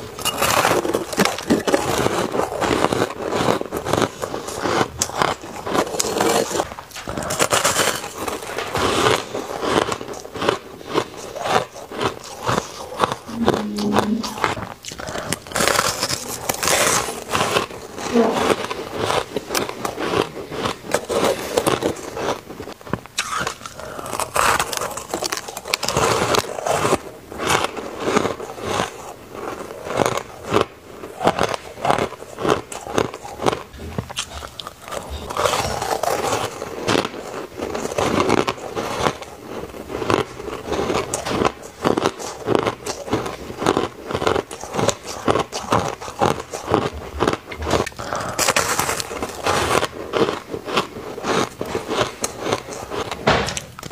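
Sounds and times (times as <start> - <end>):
teeth crunching ice: 0.0 - 53.9.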